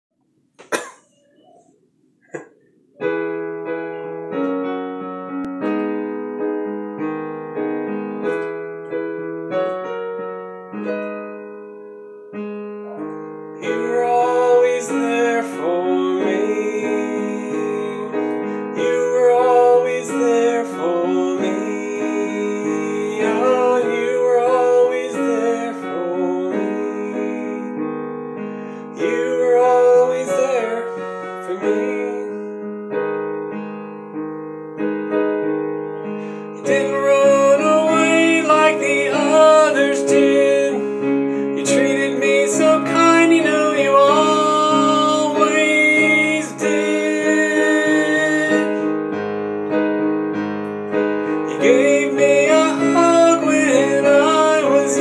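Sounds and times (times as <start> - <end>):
digital piano chords: 0.6 - 55.0
person singing: 12.8 - 27.8, 29.0 - 32.6, 36.2 - 49.0, 51.3 - 55.0.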